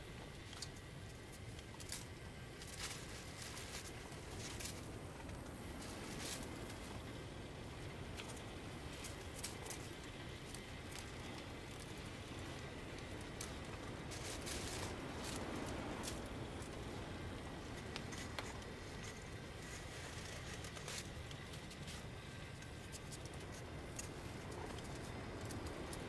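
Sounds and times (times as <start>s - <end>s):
steady low hiss: 0.0s - 26.0s
ticks and crackles of melting snow: 0.0s - 26.0s.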